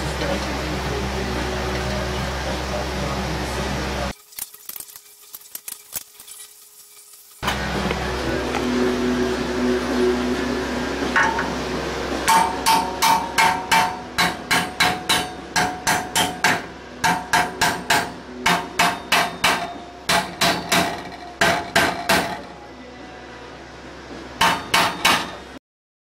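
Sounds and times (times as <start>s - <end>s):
hammer pounding on steel: 12.2s - 22.5s, 24.4s - 25.4s.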